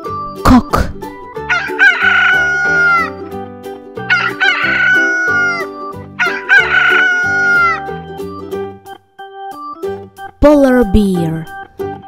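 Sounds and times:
background music: 0.0s - 12.0s
rooster crowing: 1.5s - 3.2s, 4.1s - 7.9s.

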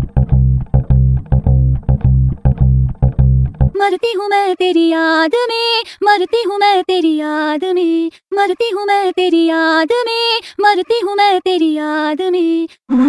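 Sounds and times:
high female voice singing: 3.7s - 13.0s.

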